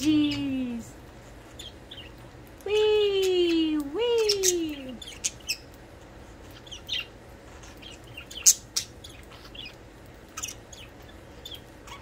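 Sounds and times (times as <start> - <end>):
budgerigars chirping: 1.6 - 2.2, 5.0 - 5.7, 6.5 - 12.0.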